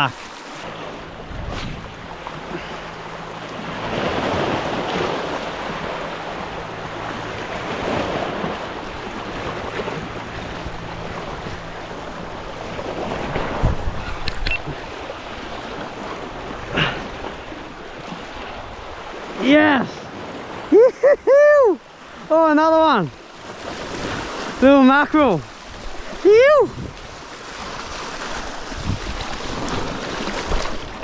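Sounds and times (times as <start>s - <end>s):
sharp clicks: 14.2s - 14.6s
small waves washing over rocks: 22.2s - 31.0s.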